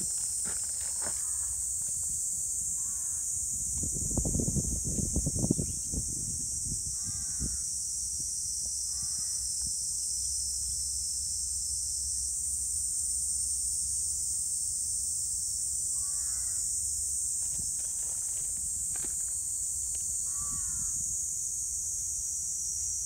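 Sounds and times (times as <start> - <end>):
insect chorus drone: 0.0 - 23.0
crow cawing faintly: 1.0 - 1.6, 2.8 - 3.3, 8.9 - 9.4, 16.0 - 16.6, 20.2 - 21.0.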